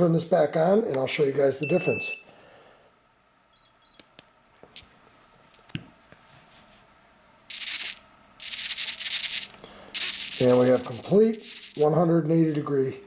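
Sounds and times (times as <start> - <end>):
servo motor buzzing: 7.5 - 11.8.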